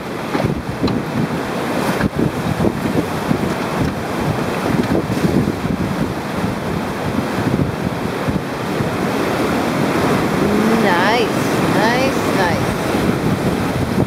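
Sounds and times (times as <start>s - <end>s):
wind buffeting microphone: 0.0s - 14.0s
river rapids rushing: 8.1s - 13.2s.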